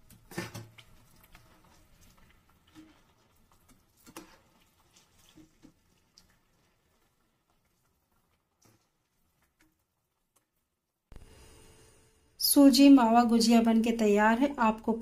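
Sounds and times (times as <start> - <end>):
deep-frying crackle in oil: 0.0 - 11.6.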